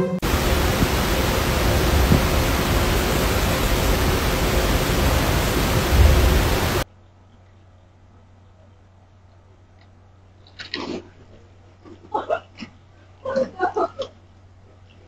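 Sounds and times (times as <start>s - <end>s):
loud steady hiss: 0.0s - 7.4s
low rumble: 0.2s - 6.8s.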